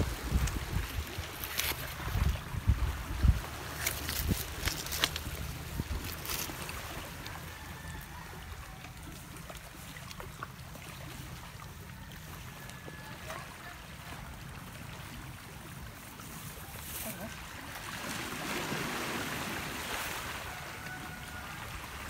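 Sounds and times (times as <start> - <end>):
wind rumble on microphone: 0.0 - 6.5
surf washing on pebbles: 0.0 - 7.7, 15.8 - 22.0.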